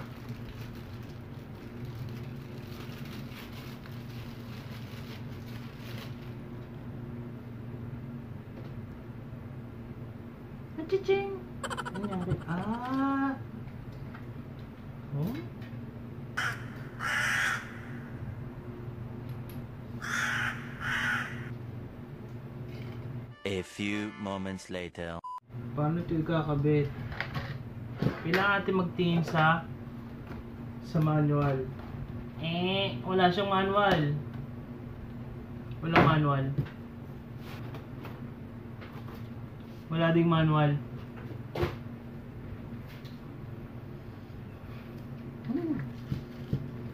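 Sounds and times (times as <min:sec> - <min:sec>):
plastic bag crinkling: 0:00.0 - 0:06.3
steady low hum: 0:06.5 - 0:23.3.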